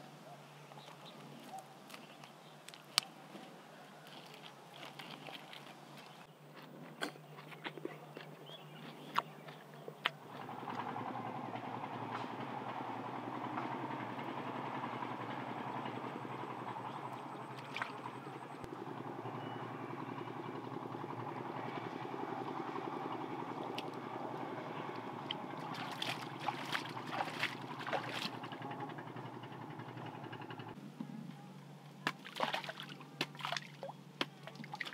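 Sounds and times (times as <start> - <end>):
distant motor hum: 0.0 - 34.9
water splashing: 4.7 - 6.3, 17.5 - 18.1, 25.2 - 28.5, 32.1 - 34.9
hands slapping wet mud: 25.2 - 28.4, 32.1 - 34.9.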